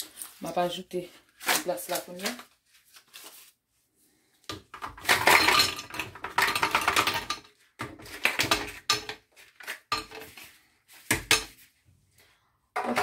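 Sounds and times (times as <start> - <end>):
ice cubes clattering into glass jar: 4.8 - 7.5.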